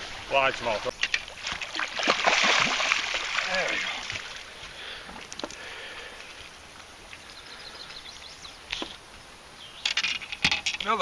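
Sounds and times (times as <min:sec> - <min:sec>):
faint outdoor ambience: 0:00.0 - 0:11.0.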